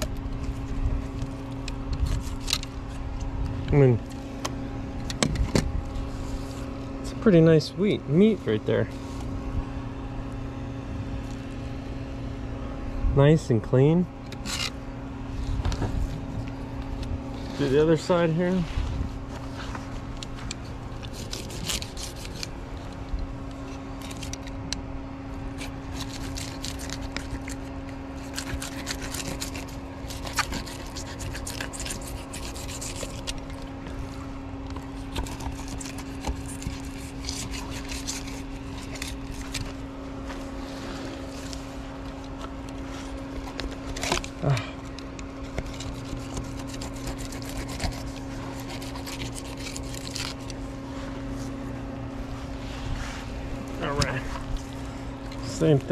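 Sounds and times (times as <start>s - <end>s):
steady low hum: 0.0s - 55.9s
knife scraping fish skin: 21.0s - 22.6s, 25.5s - 33.7s, 34.8s - 39.8s, 45.4s - 50.6s.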